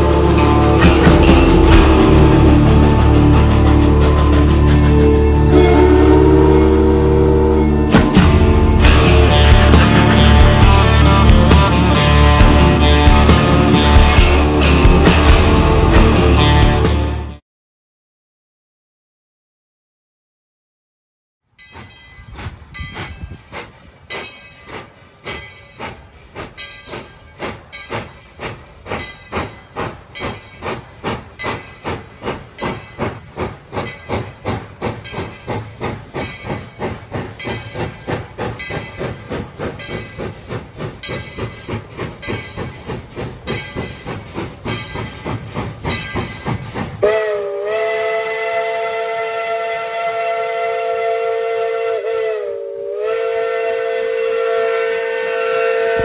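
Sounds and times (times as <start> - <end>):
steam locomotive chuffing: 0.0 - 17.4, 21.6 - 56.0
steam whistle blast: 5.3 - 9.3, 47.0 - 56.0.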